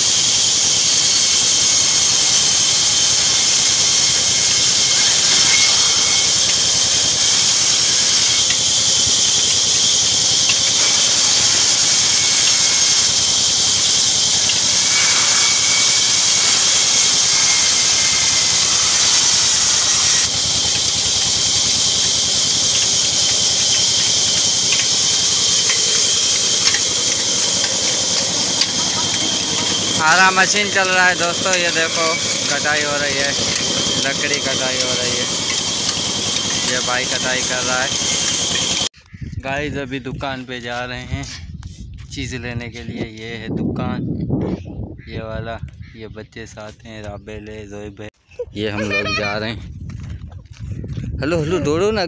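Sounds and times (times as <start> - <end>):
faint saw whine: 0.0 - 38.9
band saw cutting wood: 0.0 - 39.0.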